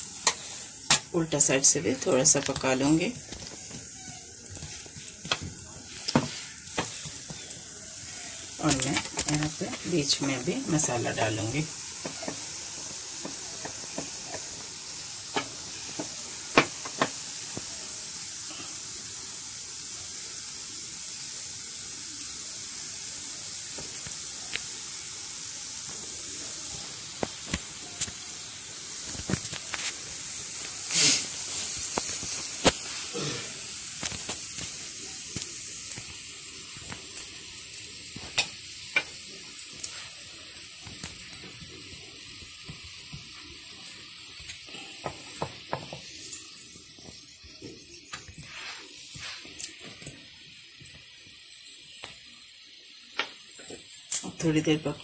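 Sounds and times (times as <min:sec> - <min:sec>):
batter sizzling on a hot pan: 0:00.0 - 0:55.0
wooden spatula clicks and scrapes: 0:02.0 - 0:07.6, 0:13.2 - 0:17.2, 0:30.9 - 0:32.9.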